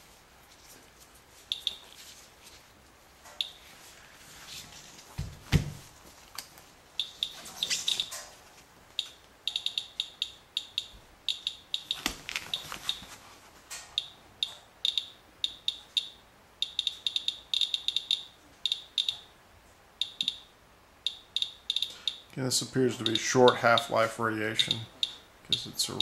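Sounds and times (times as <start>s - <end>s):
geiger counter chirping: 1.5s - 1.8s, 7.0s - 8.1s, 9.0s - 12.0s, 14.0s - 19.3s, 20.0s - 22.3s.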